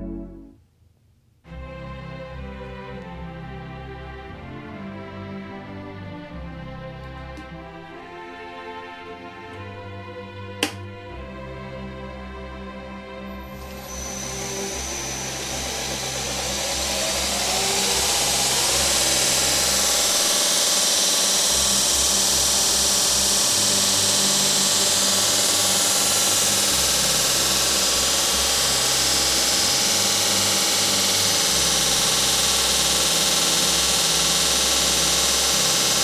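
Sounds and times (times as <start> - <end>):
belt grinder motor spinning: 13.6 - 36.0
sanding belt hiss: 13.6 - 36.0.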